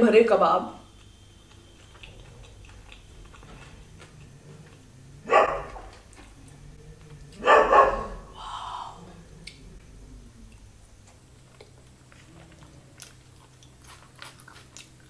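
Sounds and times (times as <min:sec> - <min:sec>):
dog barking: 0:05.2 - 0:06.0, 0:07.4 - 0:08.4.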